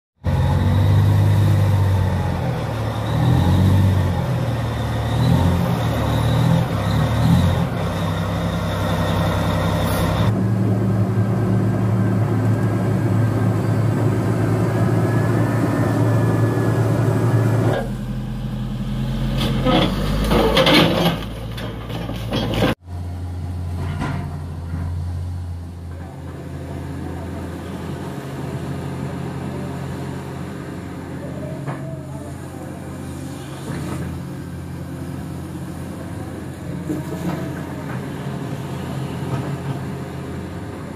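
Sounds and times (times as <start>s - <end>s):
heavy diesel engines running: 0.2s - 40.9s
knocks and clatter: 19.4s - 22.8s.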